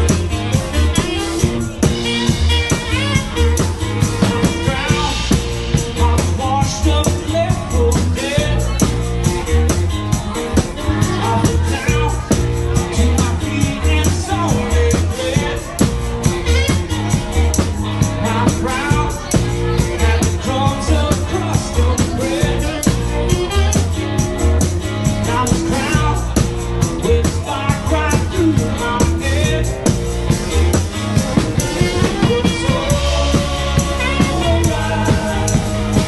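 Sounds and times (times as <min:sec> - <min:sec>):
man singing into a microphone: 0:00.0 - 0:09.1, 0:10.2 - 0:30.8, 0:31.4 - 0:36.0
live rock band playing: 0:00.0 - 0:36.0.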